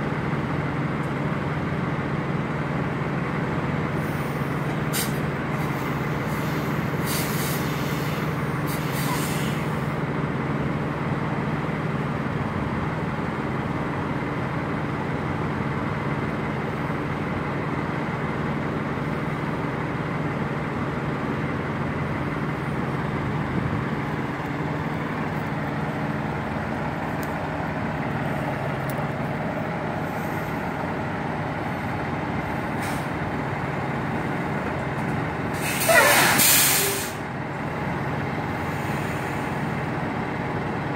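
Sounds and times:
diesel truck engine idling: 0.0 - 40.9
air brake hisses: 4.0 - 9.8, 32.8 - 33.1, 35.5 - 37.2, 38.7 - 39.6.

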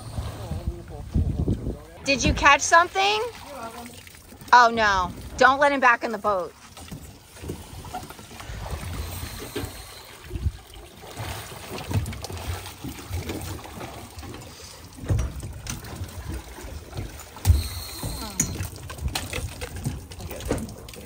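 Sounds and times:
water splashing and dripping: 0.0 - 21.0.

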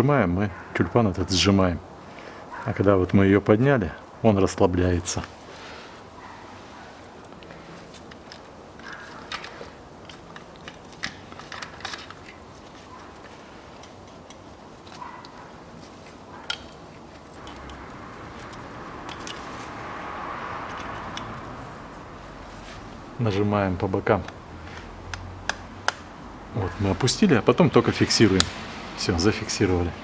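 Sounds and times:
rustling: 5.2 - 23.2
plastic clips clicking: 7.3 - 12.4, 20.7 - 21.4.

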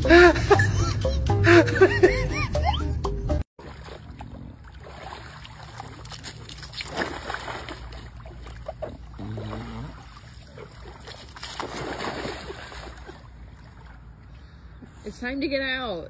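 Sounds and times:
pool water splashing: 3.6 - 14.7.

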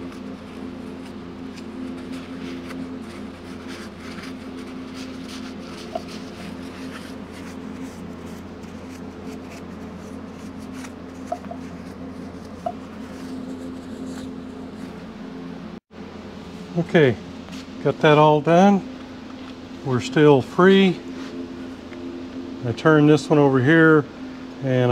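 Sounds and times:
paper towel scrubbing metal: 0.0 - 15.1
steady background hum: 0.0 - 24.9.

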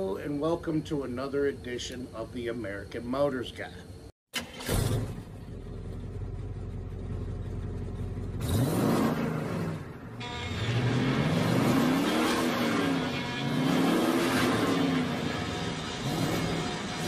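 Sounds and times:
car engine revving: 4.4 - 17.0.

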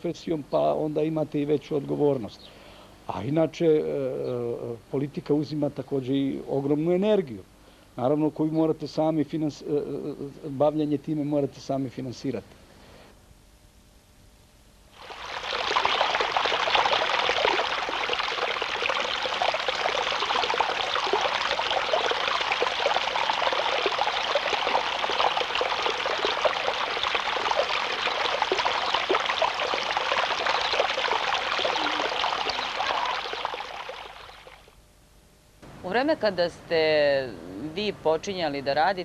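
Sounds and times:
stream splashing over stones: 15.0 - 34.7.

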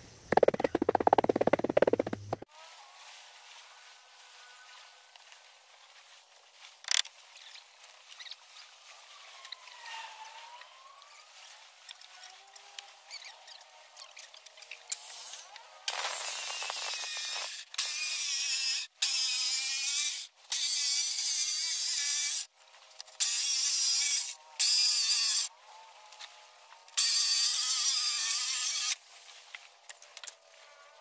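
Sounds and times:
circular saw cutting wood: 9.0 - 29.0.

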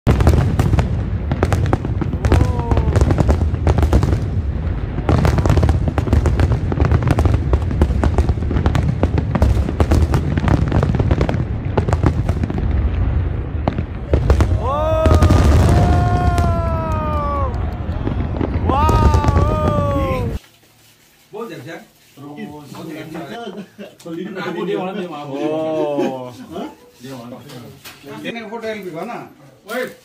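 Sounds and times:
fireworks bangs and crackles: 0.0 - 20.4
continuous low rumble: 0.7 - 20.4.

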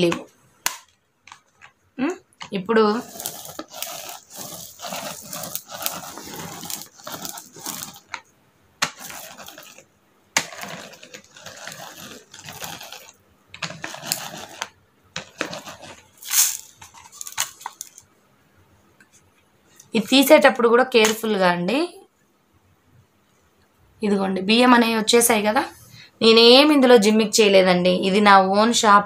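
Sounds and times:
brush rollers rustling on fabric: 2.8 - 8.2, 8.8 - 18.0
rice grains rattling: 2.9 - 8.2, 8.8 - 18.0.

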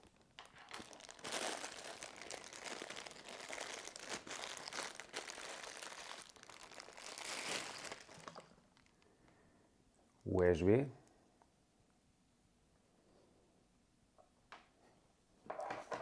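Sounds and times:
plastic bags crinkling: 0.0 - 9.2.

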